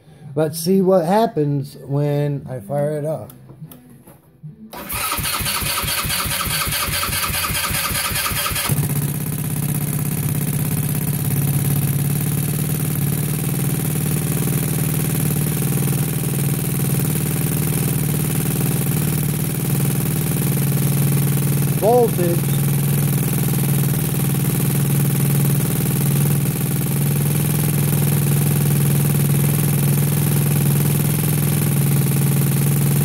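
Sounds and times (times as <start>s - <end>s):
electric starter cranking: 4.7s - 9.4s
scooter engine idling: 4.8s - 33.0s.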